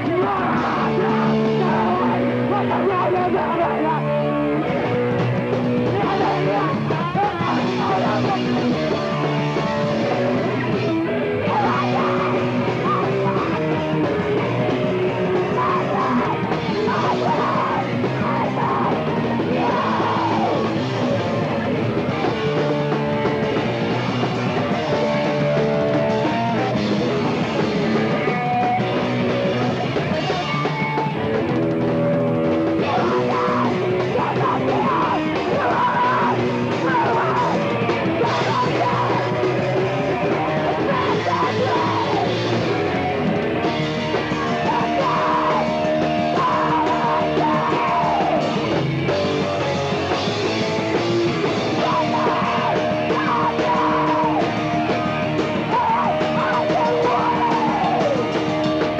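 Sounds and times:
punk band playing live: 0:00.0 - 0:58.9
person yelling vocals: 0:32.8 - 0:37.6, 0:44.2 - 0:48.5.

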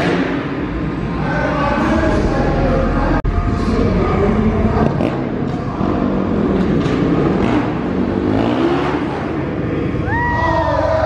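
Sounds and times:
dirt bike engine revving: 0:00.0 - 0:09.9.

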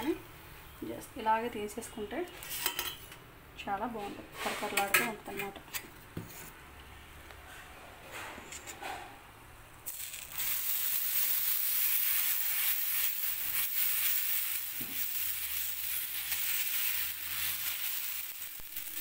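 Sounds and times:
batter sizzling on hot griddle: 0:09.9 - 0:19.0.

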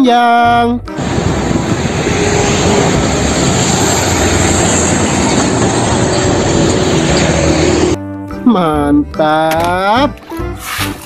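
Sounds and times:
truck driving past: 0:00.9 - 0:08.0.

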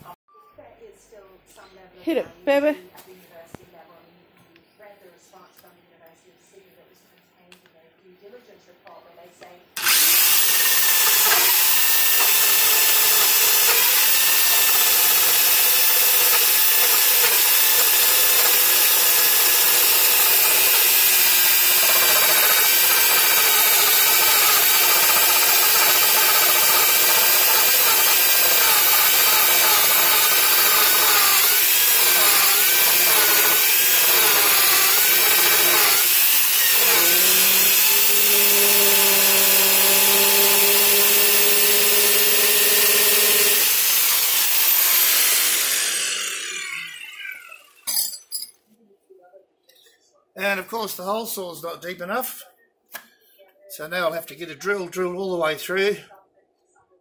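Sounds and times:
electric drill hole saw grinding wood: 0:09.8 - 0:47.9.

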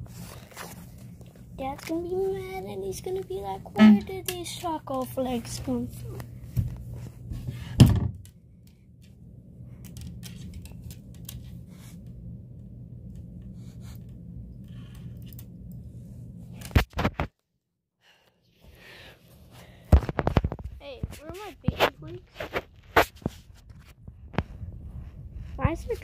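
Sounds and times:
faint low hum: 0:00.0 - 0:16.8.

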